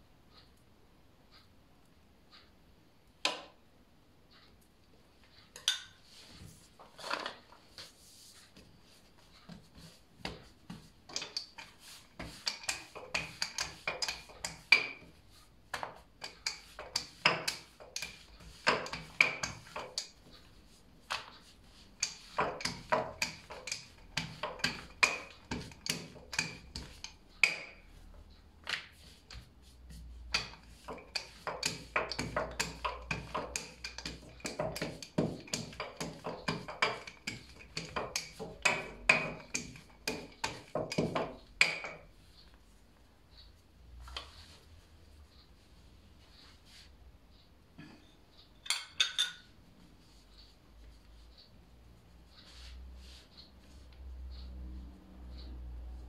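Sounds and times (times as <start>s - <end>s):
rolling pin knocking on countertop: 10.2s - 20.2s, 22.0s - 27.8s, 30.3s - 42.1s.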